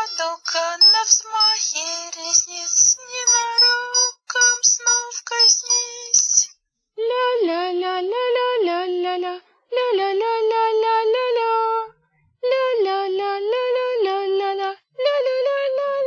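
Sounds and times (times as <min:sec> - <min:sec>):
woman singing wordless melody: 0:00.0 - 0:16.0.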